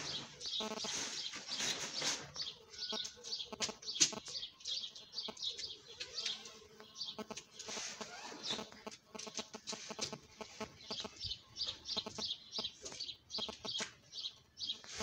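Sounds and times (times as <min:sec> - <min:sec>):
tent mesh door rustling: 0:00.0 - 0:02.4, 0:07.6 - 0:08.7
small birds chirping: 0:00.0 - 0:15.0.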